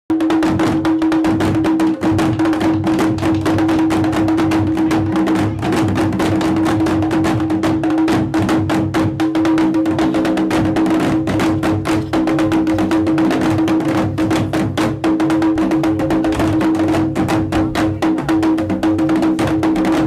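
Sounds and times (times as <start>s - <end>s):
fast dense drumming: 0.1s - 20.0s.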